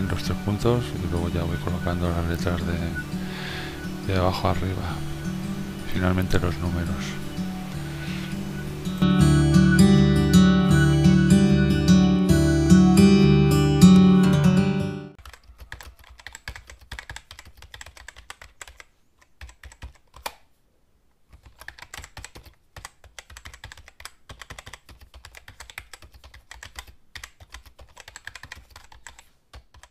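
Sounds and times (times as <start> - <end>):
acoustic guitar music: 0.0 - 15.2
rapid typing on keyboard: 15.2 - 20.4, 21.3 - 29.9.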